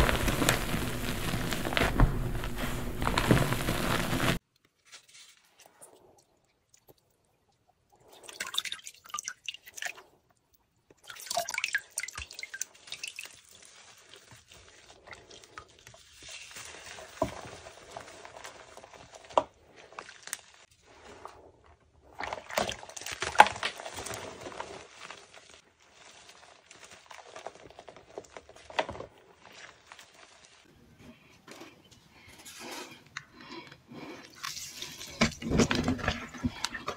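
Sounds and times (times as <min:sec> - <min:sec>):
chalk crunching: 0:00.0 - 0:05.5
water splashing and dripping: 0:10.9 - 0:17.2.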